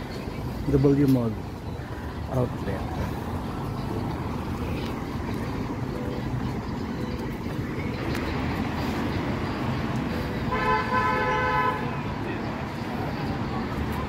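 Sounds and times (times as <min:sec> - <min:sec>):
passing traffic: 0:00.0 - 0:14.0
vehicle horn blast: 0:10.5 - 0:12.0.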